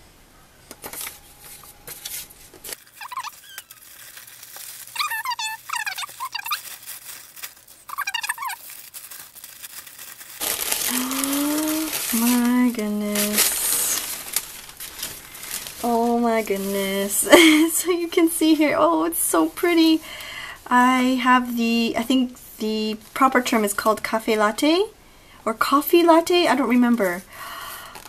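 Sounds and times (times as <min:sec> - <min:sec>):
plastic and tissue paper crinkling: 0:00.7 - 0:18.8, 0:26.2 - 0:28.0
short squeaky chirps: 0:02.9 - 0:03.9, 0:04.9 - 0:06.6, 0:07.8 - 0:08.7
vocal murmur: 0:03.0 - 0:03.7.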